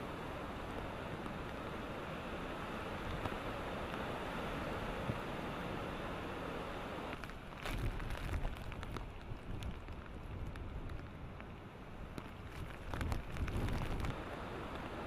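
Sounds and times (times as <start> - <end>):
driving rain: 0.0 - 15.0
hurricane wind: 0.0 - 15.0
raindrops ticking on camera: 7.1 - 14.9
wind buffeting microphone: 12.2 - 14.8.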